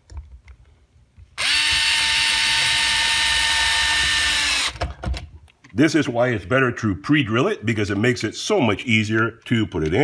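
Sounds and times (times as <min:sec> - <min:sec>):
electric screwdriver whine: 0:01.4 - 0:04.9.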